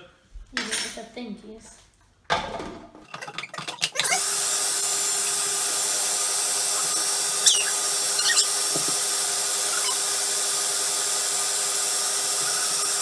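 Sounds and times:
food processor motor humming: 3.8 - 13.0
short high squeaks: 6.7 - 8.8, 9.6 - 10.3, 12.3 - 13.0.

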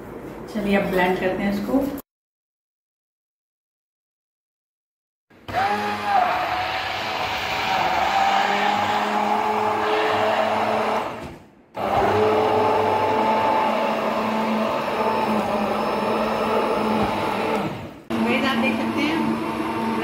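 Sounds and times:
hand blender running: 5.5 - 11.2, 11.8 - 20.0.

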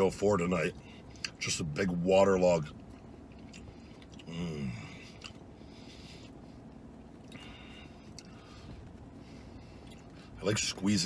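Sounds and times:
man chewing food: 2.8 - 10.3.

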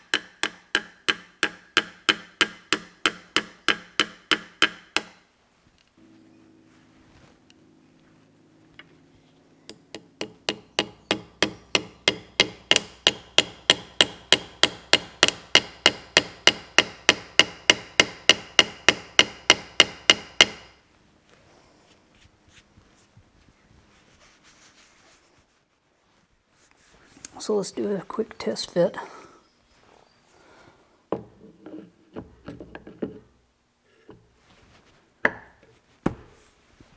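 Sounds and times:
small hammer tapping metal: 0.0 - 5.2, 9.7 - 20.8.

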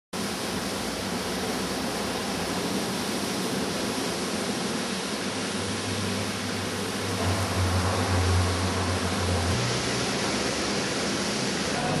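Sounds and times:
steady rushing noise: 0.2 - 12.0
low hum: 5.2 - 12.0.

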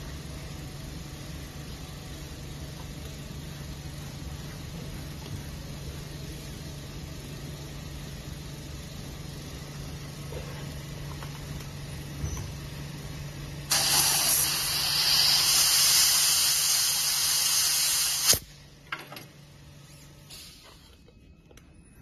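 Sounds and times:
low machine hum: 0.0 - 22.0
loud even hiss: 13.7 - 18.5.

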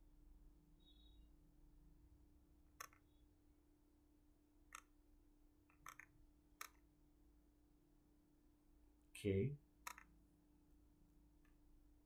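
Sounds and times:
computer mouse clicks: 2.7 - 3.2, 4.7 - 5.0, 5.6 - 6.9, 9.8 - 10.2.

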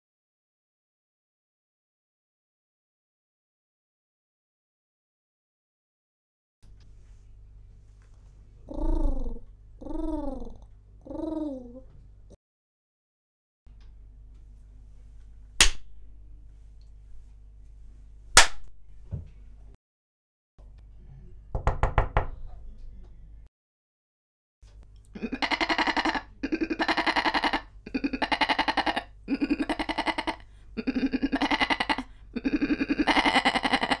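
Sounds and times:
slaps: 15.6 - 16.0, 18.4 - 18.8
goat bleating: 25.2 - 30.4, 31.0 - 33.9.

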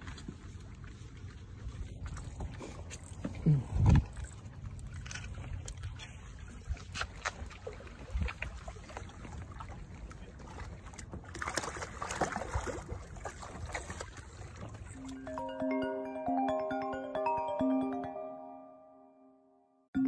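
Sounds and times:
sea water sloshing against rocks: 3.9 - 15.0
fish splashing in water: 4.1 - 14.9.

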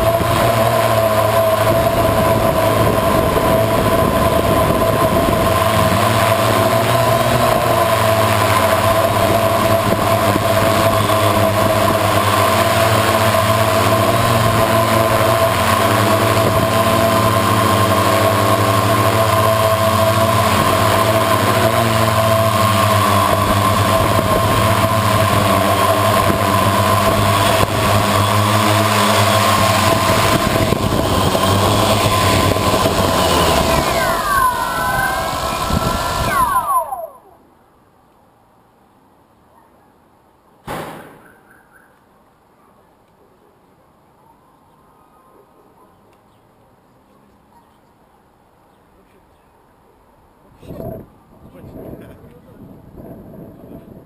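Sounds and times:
drone motors whining: 0.0 - 37.5.

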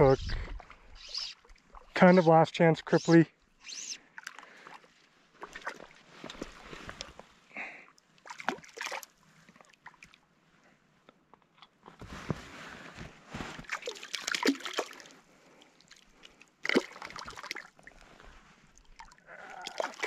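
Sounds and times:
lake water splashing: 4.1 - 7.2, 8.2 - 10.2, 13.6 - 15.2, 15.8 - 18.0, 18.7 - 20.0.

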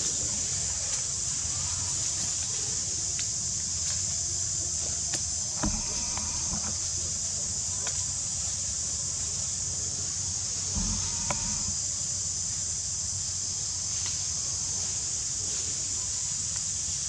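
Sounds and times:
forest insects droning: 0.0 - 17.0
low bump: 5.6 - 6.9, 10.8 - 11.8.

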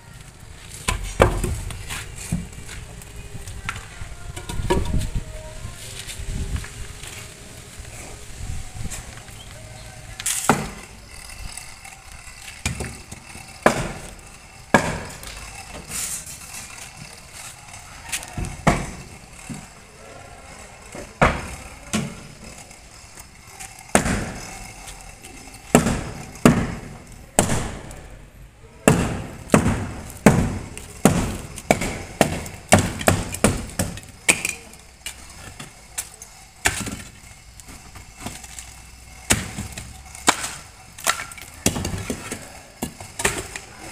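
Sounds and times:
block scraping: 6.0 - 28.1, 28.9 - 43.9
concrete blocks knocking: 12.5 - 16.0, 28.8 - 43.9.

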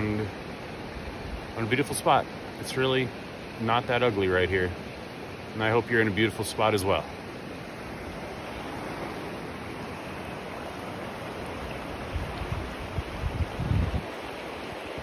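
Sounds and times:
stream rushing over rocks: 0.0 - 15.0
wind buffeting microphone: 10.4 - 15.0.

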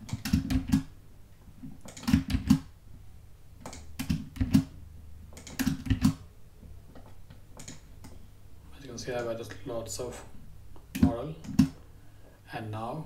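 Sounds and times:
keyboard typing: 0.0 - 0.9, 1.8 - 2.7, 3.6 - 6.2, 7.0 - 8.2, 10.9 - 11.8.

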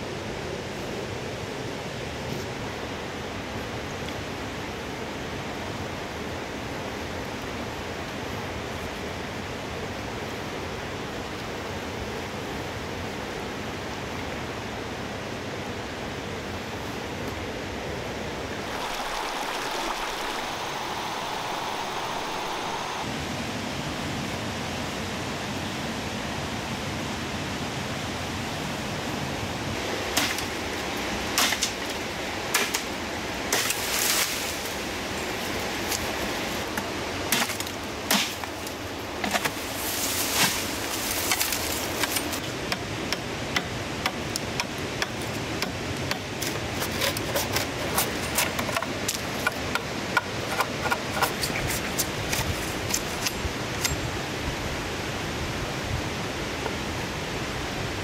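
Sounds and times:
river rushing: 0.0 - 51.4
leaf rustle: 16.3 - 26.3, 27.8 - 44.1, 44.8 - 58.0.

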